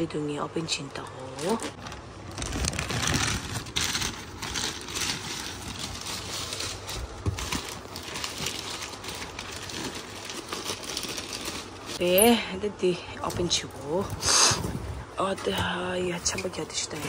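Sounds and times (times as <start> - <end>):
plastic bag crinkling and tearing: 1.2 - 12.2.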